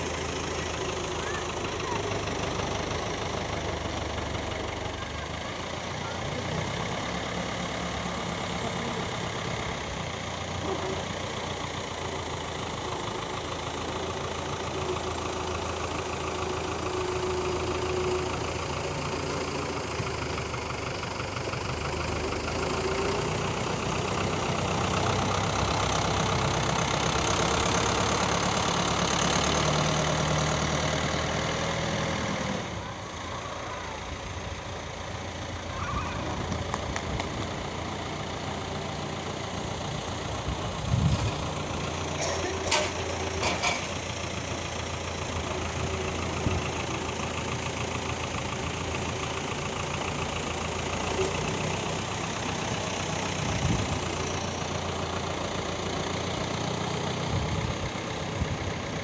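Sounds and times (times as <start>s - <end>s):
tractor diesel engine: 0.0s - 59.0s.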